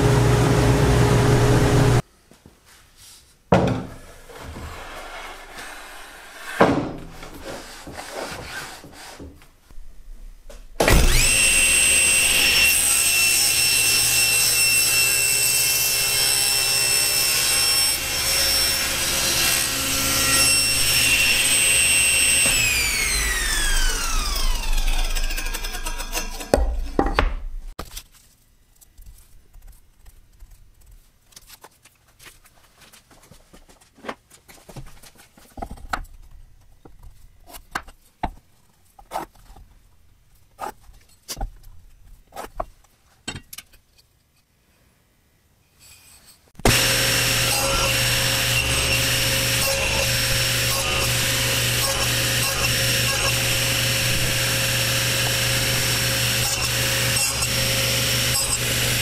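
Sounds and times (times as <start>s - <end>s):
table saw running: 0.0s - 2.0s, 10.9s - 27.0s, 46.6s - 59.0s
table saw blade spinning down: 10.9s - 13.1s, 17.9s - 27.0s, 46.6s - 59.0s.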